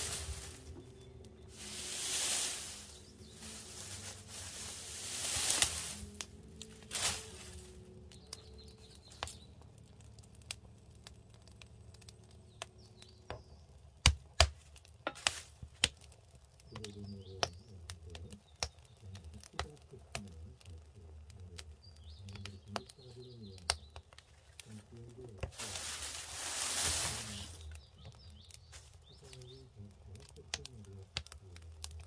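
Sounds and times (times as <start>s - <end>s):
birds chirping faintly: 0.0s - 32.0s
firewood crackling and popping: 0.0s - 32.0s
wood poked with a stick: 13.3s - 16.1s, 17.2s - 17.7s.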